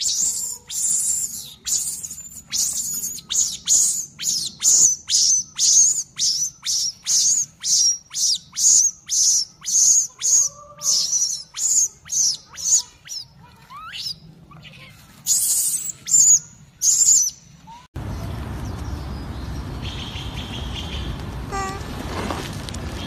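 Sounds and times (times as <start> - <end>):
baby monkey screaming: 0.0 - 17.3.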